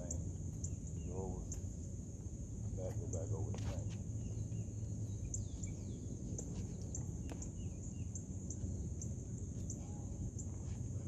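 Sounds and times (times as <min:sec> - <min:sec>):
faint bird chirps: 0:00.0 - 0:02.0, 0:02.7 - 0:11.0
high insect trill: 0:00.0 - 0:11.0
sharp repeating chirp: 0:02.8 - 0:10.6.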